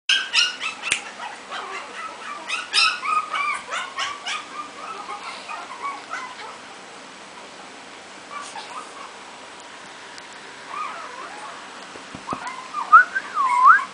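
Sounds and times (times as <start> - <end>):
puppy whimpering and yipping: 0.1 - 6.6, 8.3 - 9.2, 10.7 - 11.6, 12.3 - 13.9.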